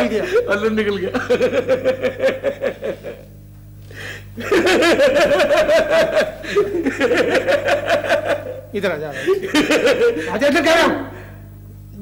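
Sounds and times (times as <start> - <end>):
man laughing heartily: 0.2 - 3.3, 4.4 - 10.4.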